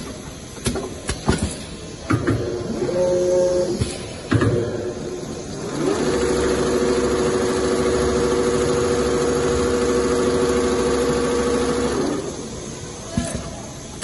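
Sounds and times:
sewing machine whirring: 0:05.5 - 0:12.7.

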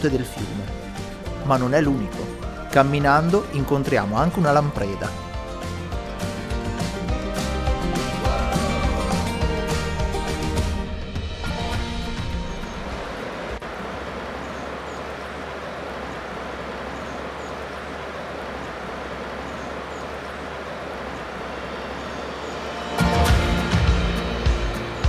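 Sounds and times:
loud music: 0:00.7 - 0:13.0, 0:22.6 - 0:25.0
river flowing: 0:11.4 - 0:25.0
faint bird chirps: 0:12.4 - 0:22.9.

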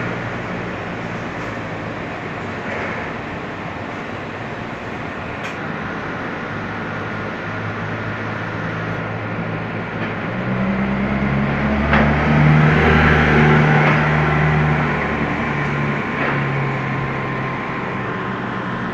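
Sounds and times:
vehicle engine passing by: 0:06.5 - 0:18.9.

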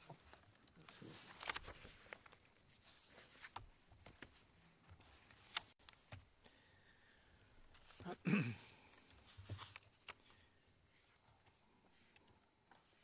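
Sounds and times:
light rustles of handled objects: 0:00.0 - 0:13.0.

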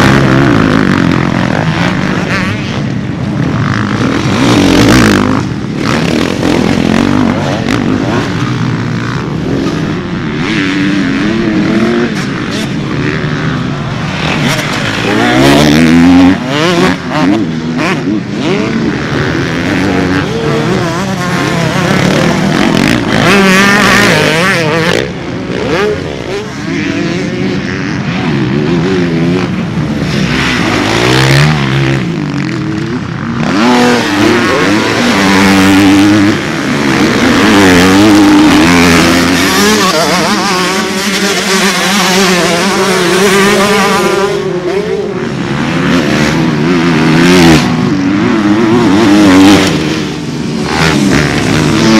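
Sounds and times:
motocross bike engines revving: 0:00.0 - 0:51.9.

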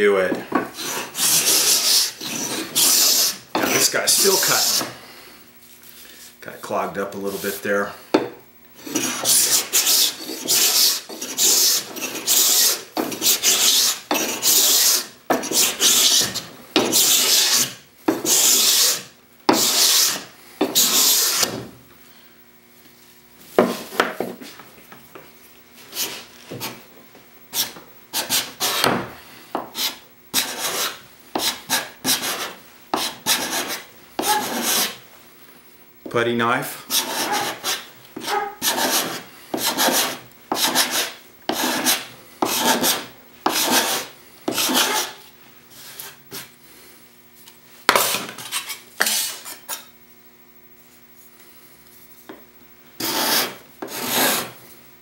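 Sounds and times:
hand scraper rasping on wood: 0:00.8 - 0:04.9, 0:08.8 - 0:21.5, 0:25.9 - 0:26.8, 0:27.6 - 0:28.9, 0:29.6 - 0:35.0, 0:36.9 - 0:45.2, 0:48.0 - 0:49.9, 0:53.0 - 0:54.6.

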